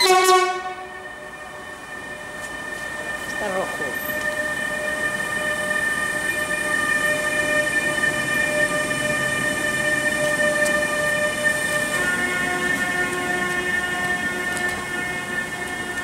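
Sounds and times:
locomotive horn: 0.0s - 1.6s, 8.5s - 16.0s
train wheels rumbling on track: 0.0s - 16.0s.

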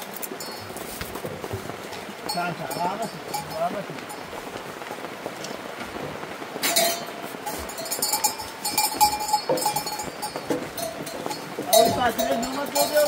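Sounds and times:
metallic clinking: 6.6s - 13.0s.

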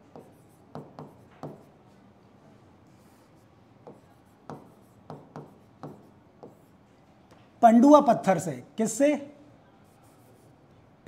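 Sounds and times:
pen scratching on screen: 0.0s - 1.7s, 2.9s - 6.8s, 9.8s - 10.6s.

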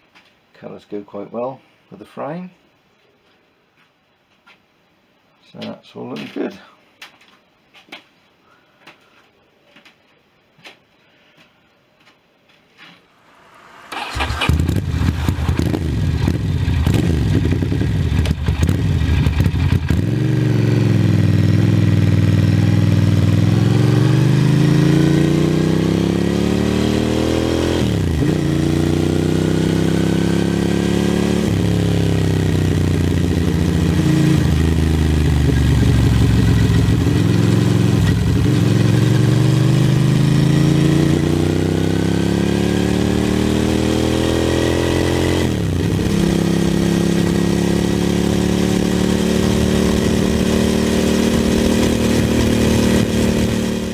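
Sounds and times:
motorcycle engine accelerating: 13.2s - 53.9s.

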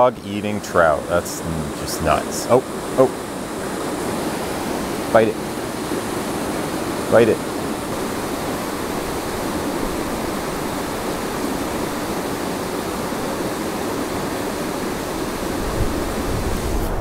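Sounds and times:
river water rushing through rapids: 0.6s - 16.7s.

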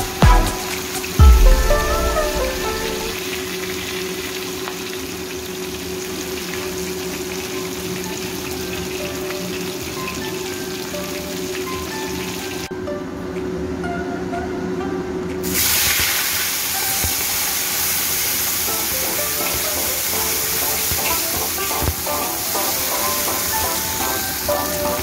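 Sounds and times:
faint background music: 0.0s - 3.4s, 6.6s - 25.0s
oil sizzling in a wok: 3.1s - 12.7s, 15.4s - 25.0s.

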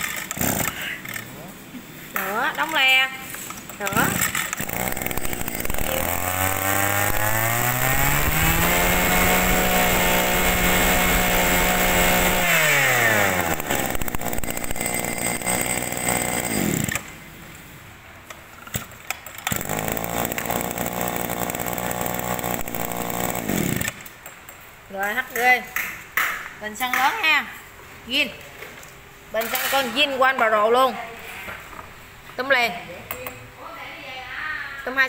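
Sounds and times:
brush cutter engine revving: 0.0s - 1.3s, 3.8s - 17.2s, 19.4s - 24.1s.

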